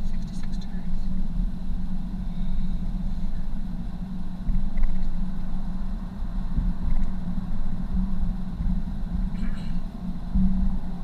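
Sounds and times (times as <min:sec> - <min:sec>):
engine and tyre rumble in car: 0:00.0 - 0:11.0.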